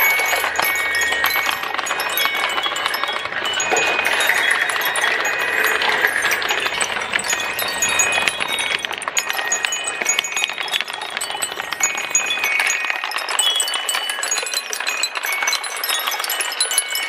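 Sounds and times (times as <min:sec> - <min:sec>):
marbles clicking down marble run: 0:00.0 - 0:17.0
metallic chime-like rings: 0:00.0 - 0:17.0.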